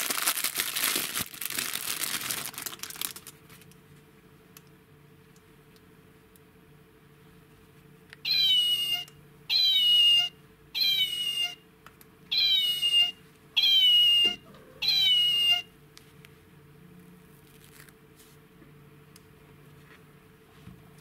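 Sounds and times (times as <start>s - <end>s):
toy playing recorded cat meow: 8.2s - 11.6s, 12.3s - 15.7s.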